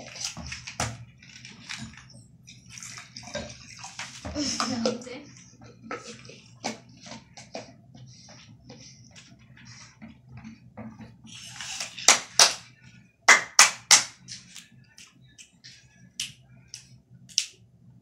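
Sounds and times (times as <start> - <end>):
child clapping hands: 12.1 - 12.6, 13.3 - 14.2.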